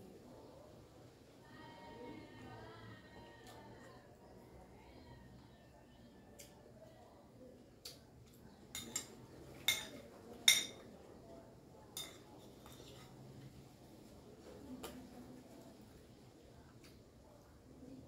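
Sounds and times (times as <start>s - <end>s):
metal spoon clinking on glass plate: 8.7s - 10.8s, 12.0s - 13.0s.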